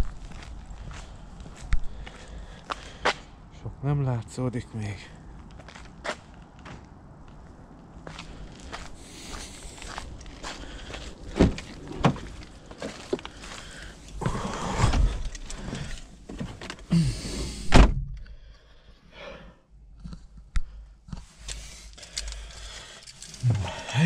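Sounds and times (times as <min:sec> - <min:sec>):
handling knocks and rustling: 0:11.1 - 0:16.9
car door shutting: 0:11.3 - 0:13.2, 0:14.1 - 0:18.2.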